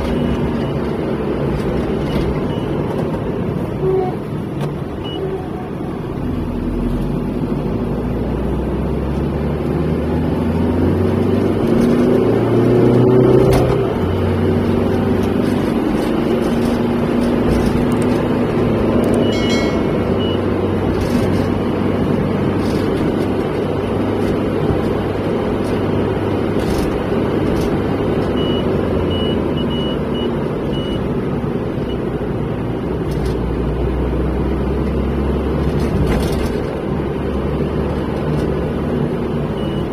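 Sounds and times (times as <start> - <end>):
car engine and tyre rumble: 0.0 - 39.9
high-pitched beep: 19.2 - 21.0.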